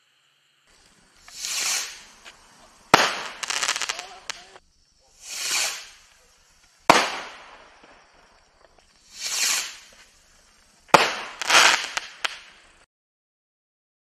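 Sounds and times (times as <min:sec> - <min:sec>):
rocket whoosh: 0:00.8 - 0:04.6, 0:05.2 - 0:08.4, 0:09.0 - 0:10.2
sharp firework bang: 0:02.9 - 0:04.5, 0:06.9 - 0:07.7, 0:10.9 - 0:12.5.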